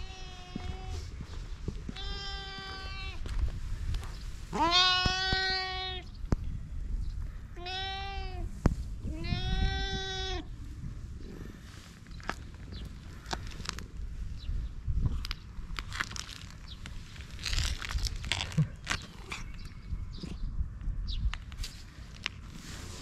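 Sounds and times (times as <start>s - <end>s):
cat meowing: 1.9s - 3.2s, 4.6s - 6.0s, 7.6s - 8.5s, 9.1s - 10.5s.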